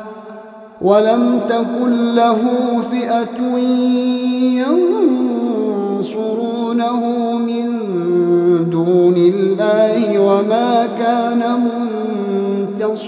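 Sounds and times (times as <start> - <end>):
man chanting: 0.0 - 13.0.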